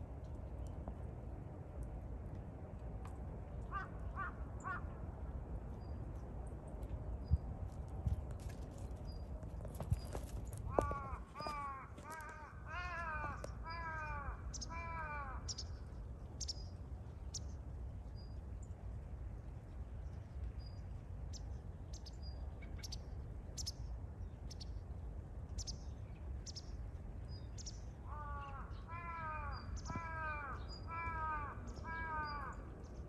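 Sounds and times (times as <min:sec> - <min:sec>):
crow cawing: 0:03.7 - 0:04.9, 0:10.7 - 0:15.5, 0:28.1 - 0:32.6
small birds chirping: 0:08.8 - 0:18.8.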